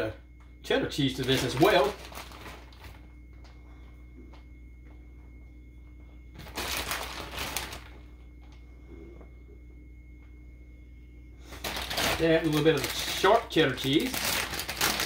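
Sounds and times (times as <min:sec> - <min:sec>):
low steady hum: 0:00.0 - 0:15.0
plastic bag crinkling: 0:01.0 - 0:03.1, 0:06.4 - 0:08.1, 0:11.5 - 0:15.0.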